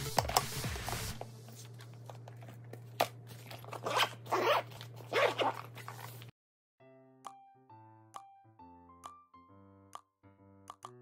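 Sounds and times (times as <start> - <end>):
zipper being pulled shut: 3.7 - 6.1.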